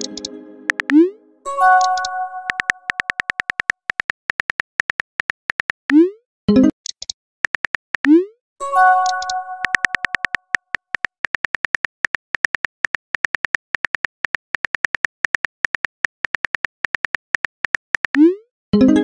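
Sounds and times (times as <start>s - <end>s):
rapid keyboard tap clicks: 0.7s - 0.9s, 1.8s - 5.8s, 7.0s - 8.1s, 9.0s - 18.2s.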